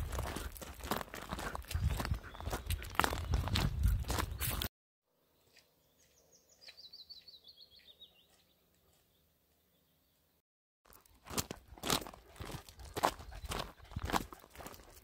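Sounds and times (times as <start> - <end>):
footsteps on gravel: 0.0 - 4.7, 10.8 - 15.0.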